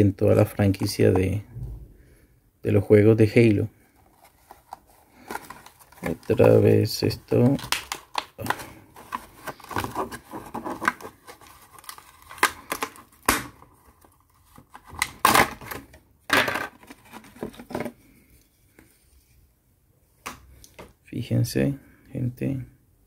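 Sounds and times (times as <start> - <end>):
plastic packaging crackling: 4.0 - 16.0
cardboard tearing: 7.4 - 15.9.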